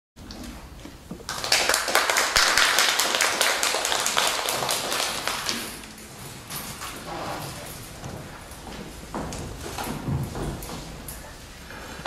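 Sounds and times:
audience applauding: 1.3s - 5.8s.

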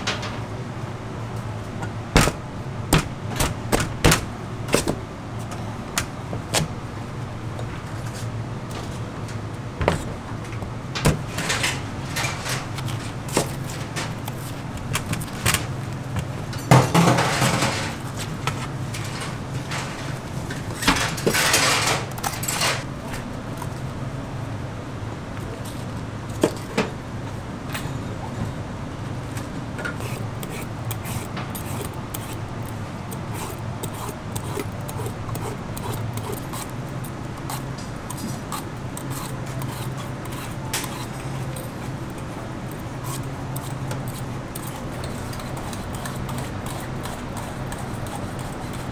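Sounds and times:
steady low hum: 0.0s - 48.9s
spoon scraping pumpkin: 30.0s - 36.8s, 37.4s - 48.9s.

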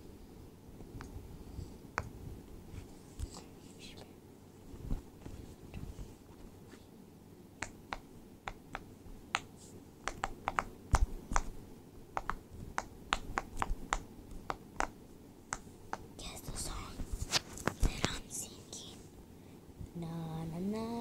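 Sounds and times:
faint low hum: 0.0s - 21.0s
sharp little clicks: 7.6s - 11.5s, 12.2s - 16.1s.

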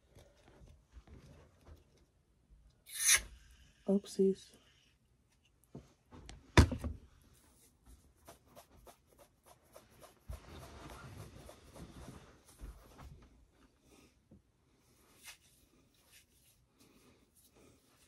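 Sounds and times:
hands rubbing foam: 7.6s - 12.7s, 15.0s - 18.0s.

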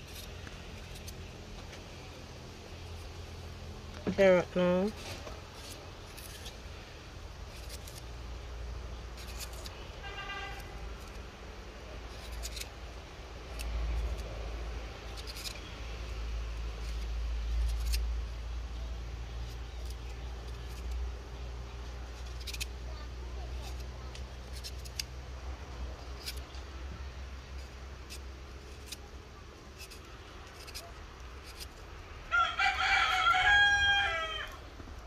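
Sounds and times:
knife slicing carrot: 29.7s - 31.8s.

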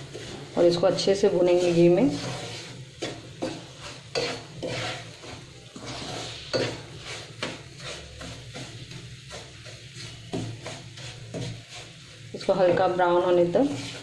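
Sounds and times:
ghee sizzling: 0.0s - 14.0s
spatula scraping a pan: 0.0s - 14.0s.

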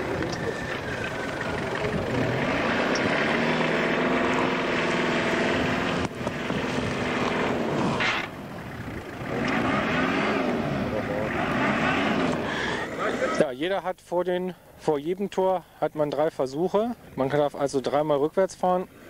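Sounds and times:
engine revving hard: 0.0s - 13.4s.

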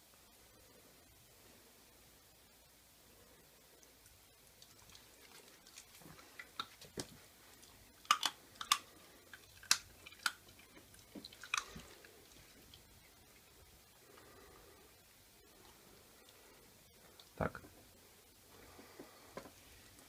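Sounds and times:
puppy crunching a treat: 4.5s - 12.8s.

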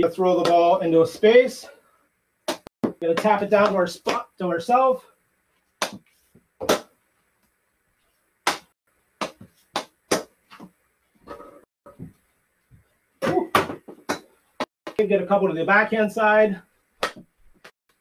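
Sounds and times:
ball hitting floor and wall: 2.5s - 4.3s, 5.8s - 7.0s, 8.4s - 14.4s, 17.0s - 17.7s.

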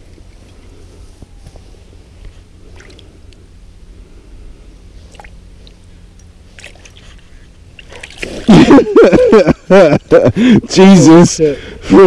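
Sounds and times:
low steady rumble: 0.0s - 12.0s
water splashes and drips: 7.8s - 8.5s.

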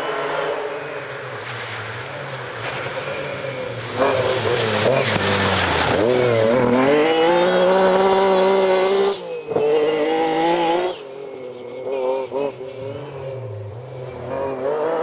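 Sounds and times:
rally car engine revving hard: 3.9s - 11.0s, 14.3s - 15.0s.

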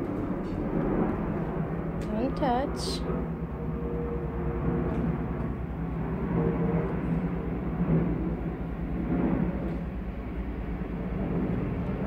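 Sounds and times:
low hum: 0.0s - 12.0s
train passing rumble: 0.0s - 12.0s.

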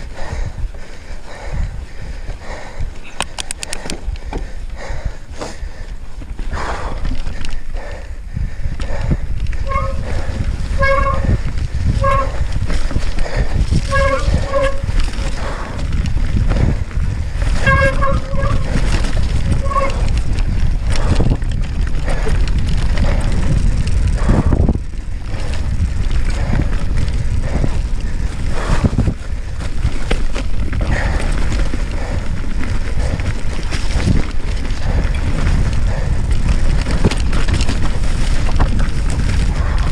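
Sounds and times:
bike rattling over bumps: 0.0s - 39.9s
wind buffeting microphone: 0.0s - 39.9s
short honking tones: 10.8s - 11.3s, 12.0s - 12.4s.

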